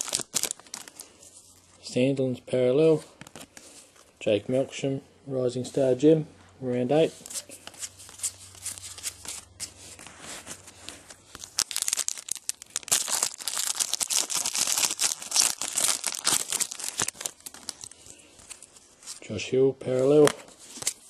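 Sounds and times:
card wrapper tearing and crinkling: 0:00.0 - 0:01.2, 0:10.7 - 0:18.8, 0:20.2 - 0:21.0
cards rustling: 0:00.0 - 0:01.6, 0:07.2 - 0:19.2, 0:19.9 - 0:21.0.

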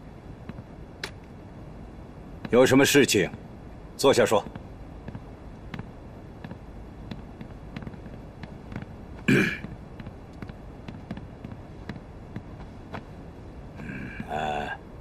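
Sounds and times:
throaty cough or grunt: 0:09.3 - 0:09.7.

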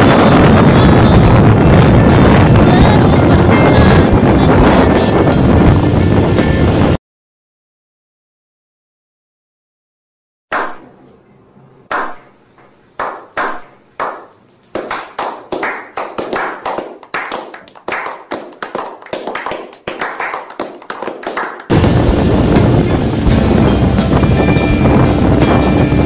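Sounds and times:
group hand clapping: 0:11.9 - 0:12.2, 0:13.0 - 0:21.7.

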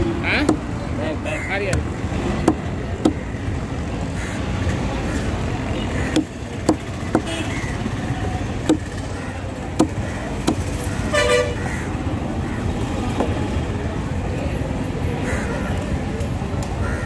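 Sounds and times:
steady traffic noise: 0:00.0 - 0:17.0
cleaver chopping on wooden table: 0:02.4 - 0:03.2, 0:08.6 - 0:08.9, 0:09.7 - 0:10.6
vehicle horn toot: 0:11.1 - 0:11.6.

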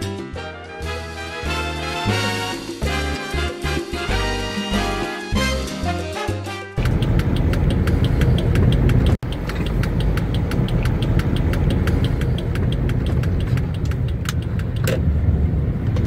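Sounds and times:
turn-signal relay ticking: 0:06.8 - 0:14.9
car engine rumbling: 0:06.8 - 0:16.0.

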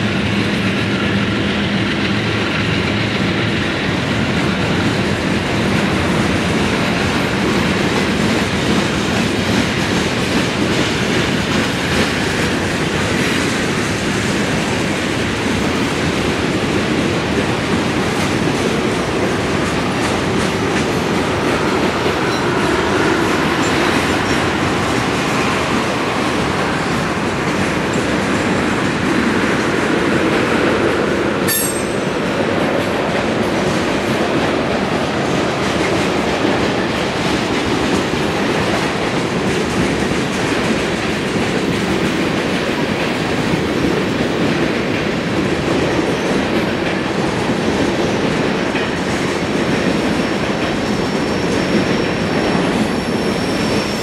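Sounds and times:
train wheels rumbling on rails: 0:00.0 - 0:54.0
sharp metallic clank: 0:31.5 - 0:32.2.

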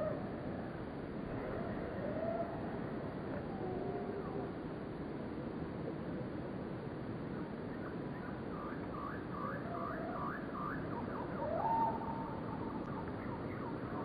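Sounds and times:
bird chirping: 0:07.7 - 0:14.0.

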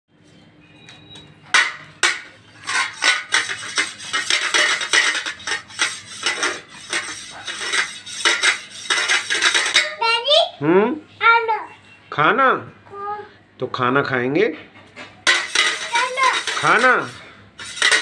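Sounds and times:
spoon clinking on metal plate: 0:01.5 - 0:09.9, 0:15.3 - 0:18.0.

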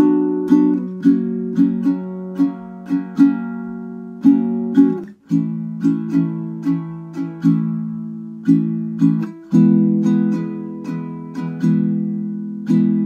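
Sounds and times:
ukulele strumming: 0:00.0 - 0:13.0.

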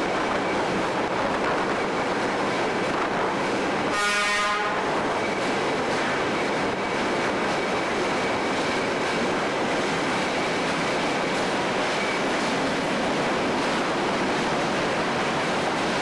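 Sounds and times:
train wheels on rails: 0:00.0 - 0:16.0
train horn blast: 0:03.9 - 0:05.0.

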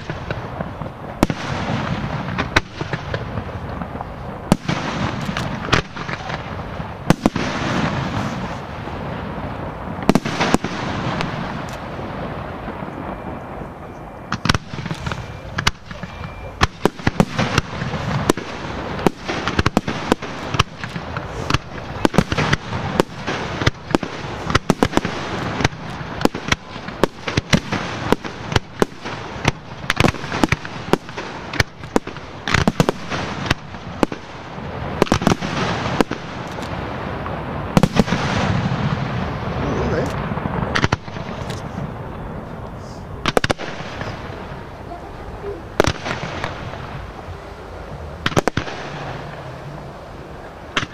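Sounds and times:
crackling hiss: 0:00.0 - 0:50.9
firework shells bursting: 0:00.0 - 0:50.9.

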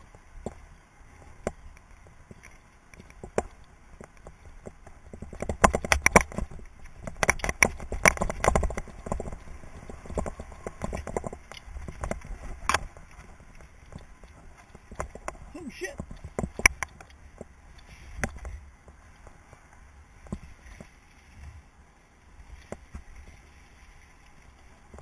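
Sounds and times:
wind: 0:00.0 - 0:25.0
mountain bike rattling and knocking: 0:02.3 - 0:17.5.

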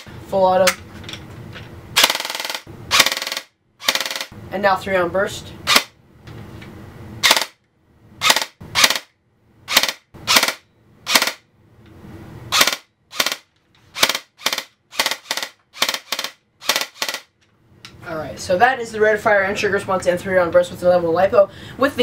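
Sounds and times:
airsoft gun firing bursts: 0:12.6 - 0:13.4, 0:14.0 - 0:17.3.

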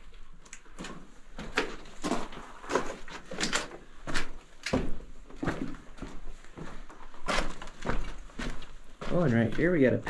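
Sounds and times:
footsteps crunching on gravel: 0:04.0 - 0:10.0.

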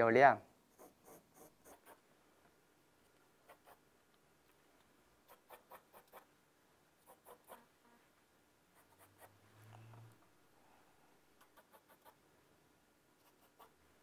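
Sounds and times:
pencil scratching on paper: 0:00.8 - 0:02.0, 0:07.0 - 0:07.7, 0:08.8 - 0:09.4.

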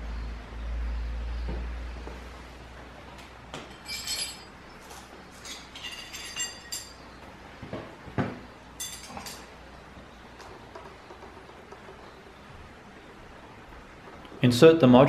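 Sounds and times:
metal hardware clinking: 0:03.7 - 0:04.5, 0:05.4 - 0:07.0, 0:08.8 - 0:09.5.

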